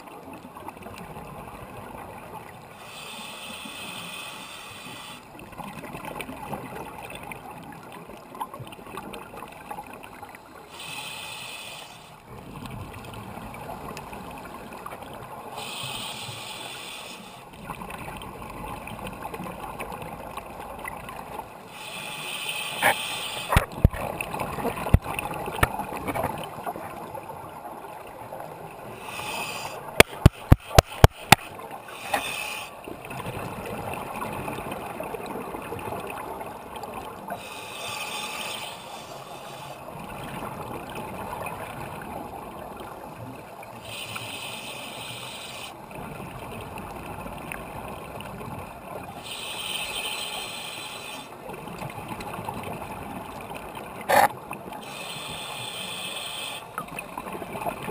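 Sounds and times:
steady hiss: 0:02.7 - 0:05.3, 0:10.6 - 0:12.2, 0:15.5 - 0:17.4, 0:21.6 - 0:23.7, 0:28.8 - 0:32.8, 0:37.4 - 0:39.9, 0:43.8 - 0:45.8, 0:49.2 - 0:51.3, 0:54.8 - 0:56.8
sharp clicks: 0:30.0 - 0:31.5.

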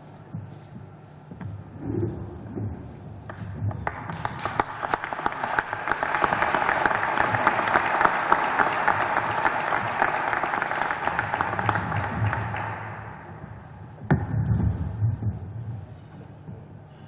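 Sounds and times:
audience applauding: 0:03.9 - 0:13.2.

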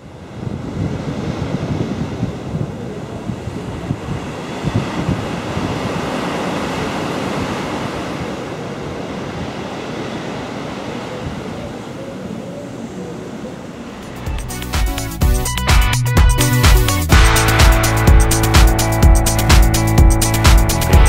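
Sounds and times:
wind on microphone: 0:00.0 - 0:14.2
sea surf breaking: 0:00.0 - 0:21.0
music with a beat: 0:14.1 - 0:21.0.

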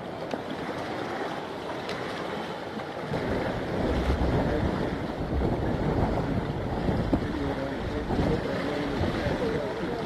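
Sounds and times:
sea noise: 0:00.0 - 0:10.0
wind buffeting microphone: 0:03.0 - 0:10.0.

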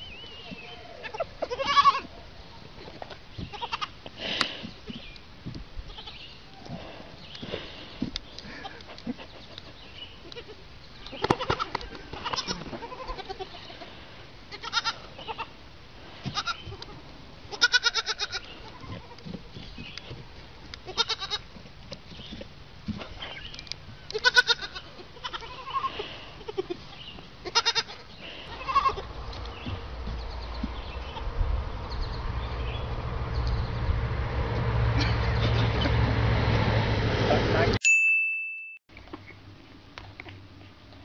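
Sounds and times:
goat kids bleating: 0:00.3 - 0:02.2, 0:02.8 - 0:04.6, 0:05.9 - 0:06.4, 0:08.4 - 0:09.4, 0:10.1 - 0:15.6, 0:16.2 - 0:19.3, 0:20.8 - 0:21.5, 0:24.0 - 0:31.3.

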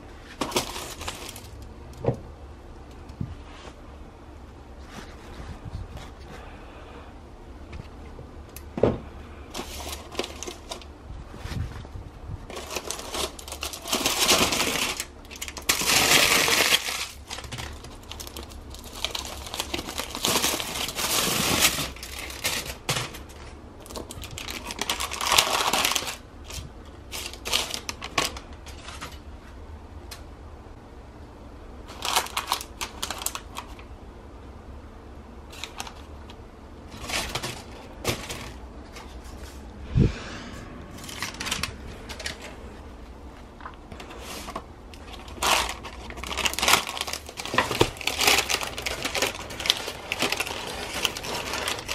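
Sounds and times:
baking paper rustling: 0:00.0 - 0:01.7, 0:04.7 - 0:06.6, 0:09.4 - 0:29.5, 0:31.8 - 0:33.9, 0:35.5 - 0:39.7, 0:41.0 - 0:51.9
aluminium foil crinkling: 0:00.2 - 0:01.7, 0:09.5 - 0:10.9, 0:12.5 - 0:29.3, 0:31.9 - 0:33.9, 0:35.5 - 0:39.6, 0:43.6 - 0:51.9.

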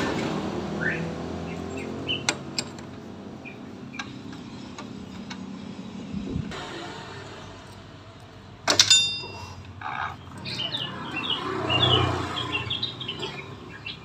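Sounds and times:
birds chirping: 0:00.7 - 0:06.3, 0:09.2 - 0:14.0
wrench clinking on metal: 0:08.7 - 0:09.7.

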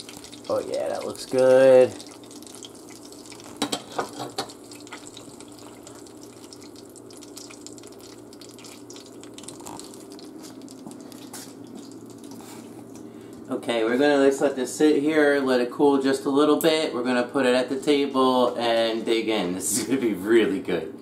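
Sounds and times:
butter sizzling in a pan: 0:00.0 - 0:12.8.

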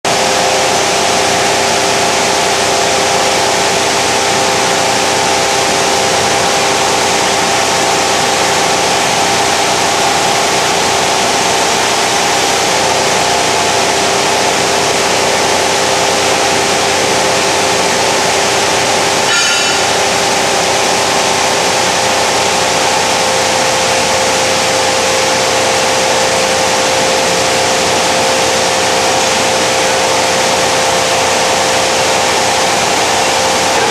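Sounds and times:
machinery humming: 0:00.1 - 0:33.9
high-pitched squeal: 0:19.2 - 0:20.2.

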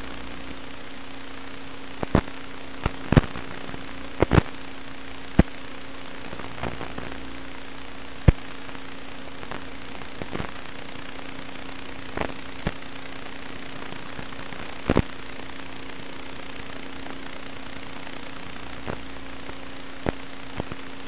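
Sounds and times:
low hum: 0:00.0 - 0:21.0
static hiss: 0:00.0 - 0:21.0
sharp crackling pops: 0:02.0 - 0:04.6, 0:05.3 - 0:05.6, 0:06.2 - 0:07.2, 0:08.2 - 0:08.8, 0:09.4 - 0:10.6, 0:12.1 - 0:12.9, 0:13.9 - 0:15.2, 0:18.8 - 0:20.9.

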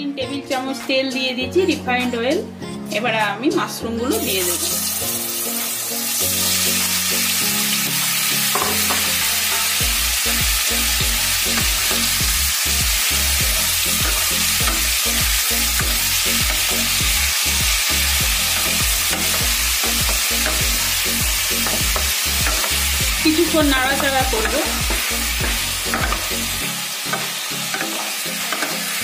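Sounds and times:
mushrooms sizzling in oil: 0:04.1 - 0:29.0
spatula stirring: 0:18.3 - 0:26.5, 0:27.1 - 0:29.0.

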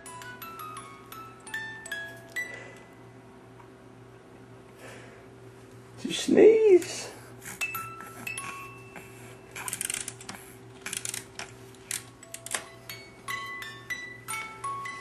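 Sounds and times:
musical toy bell tune: 0:00.0 - 0:02.8, 0:07.6 - 0:09.6, 0:12.2 - 0:15.0.

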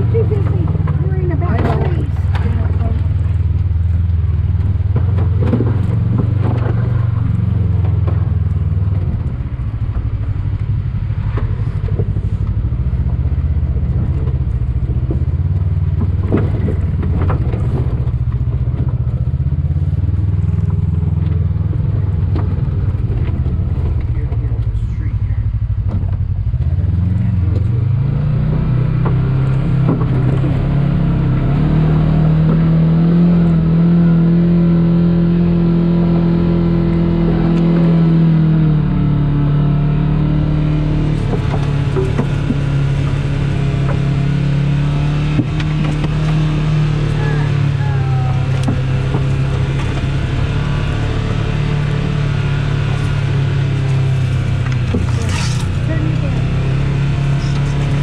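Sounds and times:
rocks and chassis clattering: 0:00.0 - 0:58.0
utility vehicle engine running: 0:00.0 - 0:58.0.

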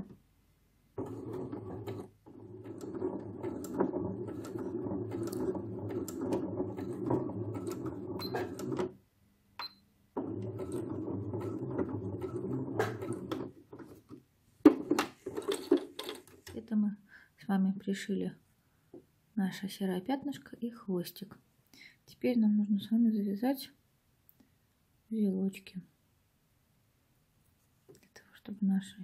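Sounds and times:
sewing machine stitching: 0:01.0 - 0:09.0, 0:10.2 - 0:14.1.

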